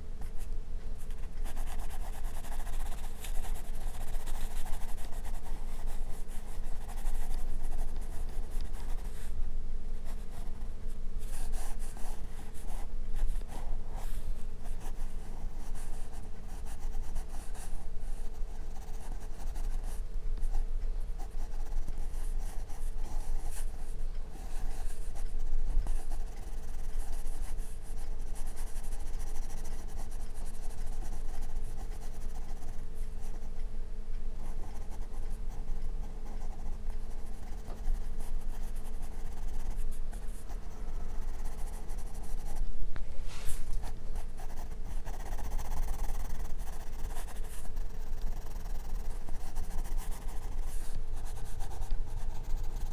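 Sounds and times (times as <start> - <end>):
steady low hum: 0.0 - 52.9
pencil scratching on paper: 1.0 - 9.3, 10.0 - 10.6, 11.2 - 20.6, 21.2 - 33.5, 34.4 - 42.6, 43.4 - 52.9.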